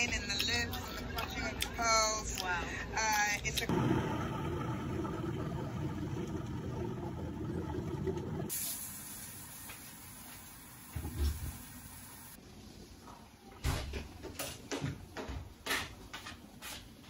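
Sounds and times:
tap water rushing into colander: 0:03.7 - 0:12.4
gas stove burner hissing: 0:08.4 - 0:12.4.

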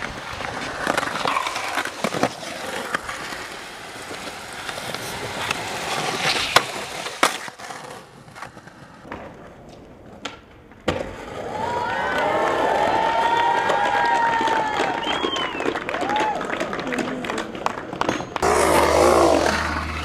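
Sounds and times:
skateboard scraping along bench: 0:00.0 - 0:11.6, 0:18.0 - 0:20.0
skateboard clacking on ground: 0:00.0 - 0:12.3, 0:13.6 - 0:18.8
skateboard wheels rolling on concrete: 0:00.0 - 0:20.0.

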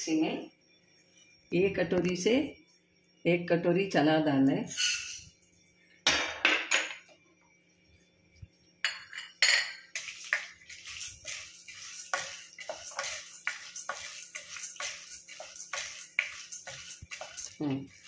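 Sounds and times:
spatula scraping steel pan: 0:09.9 - 0:18.0.

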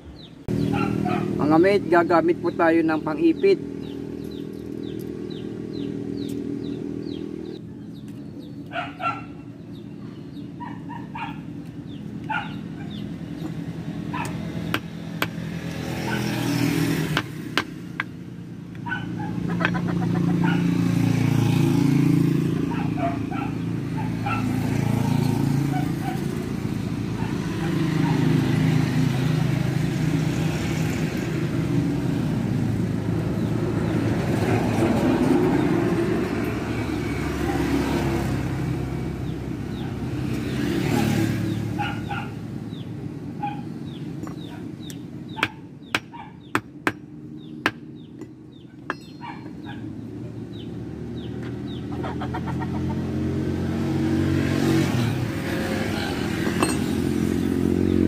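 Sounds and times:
road vehicles passing: 0:00.0 - 0:58.0.

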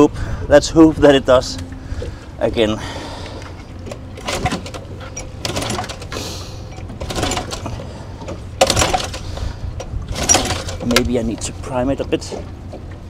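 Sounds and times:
low wind rumble: 0:00.0 - 0:13.0
engine cranking without catching: 0:01.4 - 0:13.0
pull-starter yanked: 0:03.4 - 0:13.0.

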